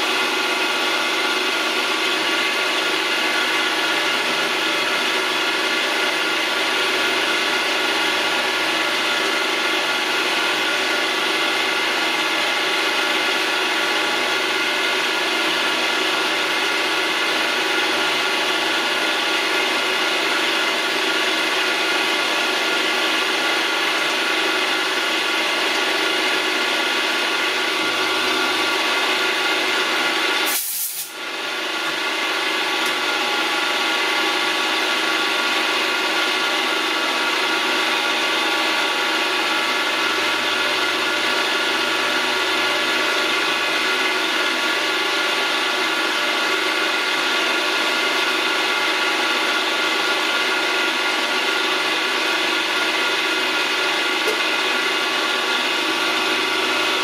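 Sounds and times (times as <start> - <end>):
milling machine motor whine: 0.1 - 30.4.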